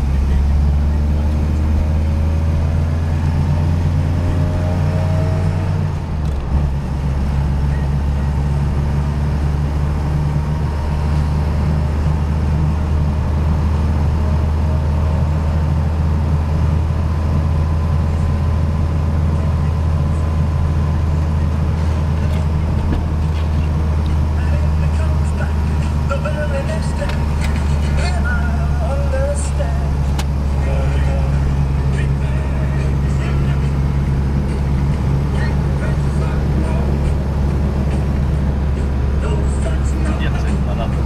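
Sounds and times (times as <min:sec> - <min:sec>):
car engine accelerating: 0:00.0 - 0:41.0.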